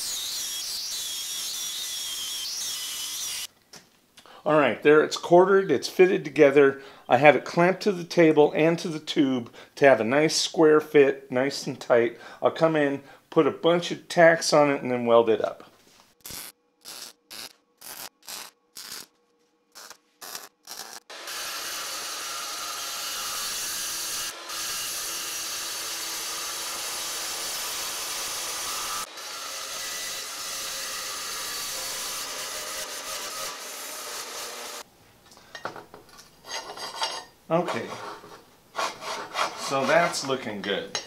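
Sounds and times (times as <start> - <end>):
welder tack welding bursts: 16.2 - 19.1, 19.7 - 21.7
chop saw cutting steel: 19.8 - 34.8
steel tube scraping: 36.4 - 40.5.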